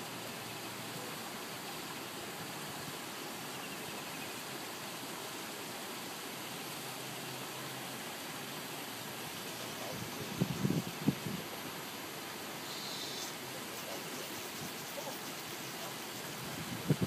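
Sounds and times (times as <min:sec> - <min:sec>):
fountain spraying water onto pond: 0:00.0 - 0:17.0.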